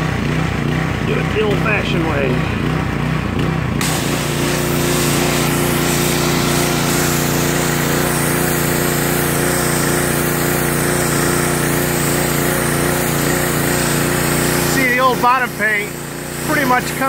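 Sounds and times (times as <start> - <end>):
pressure washer running: 0.0 - 17.0
water jet spray hissing: 3.8 - 17.0.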